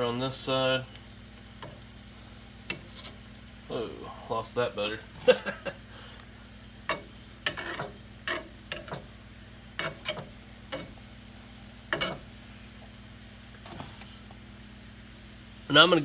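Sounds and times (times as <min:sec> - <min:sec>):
metal utensil scraping a skillet: 0:02.7 - 0:03.3, 0:06.9 - 0:09.1, 0:09.8 - 0:11.0, 0:11.9 - 0:12.3.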